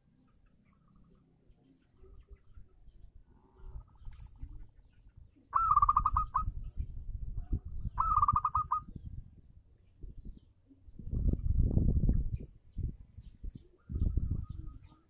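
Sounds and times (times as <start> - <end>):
dove trilling: 3.5 - 6.8, 7.4 - 9.0.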